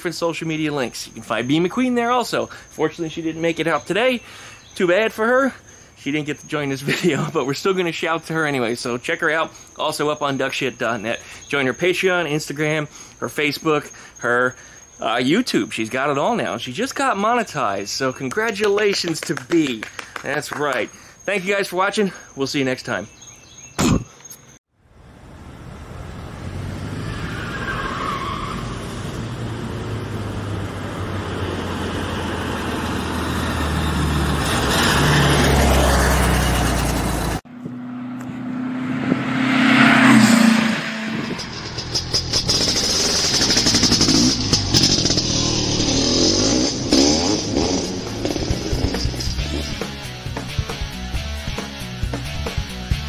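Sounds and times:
car engine passing by: 25.3 - 50.0
vehicle engine revving: 28.5 - 51.6.

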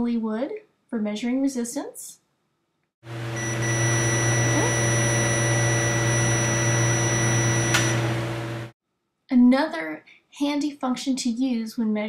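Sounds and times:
multimeter continuity beep: 3.3 - 8.1.

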